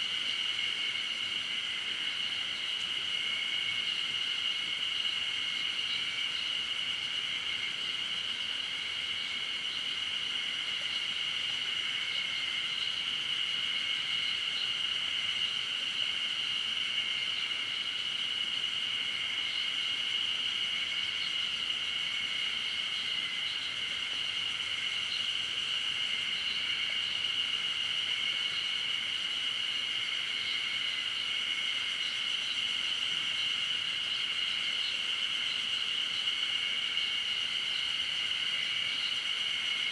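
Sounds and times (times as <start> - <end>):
faint flickering insect trill: 0.0 - 39.9
insect chorus buzzing: 0.0 - 39.9.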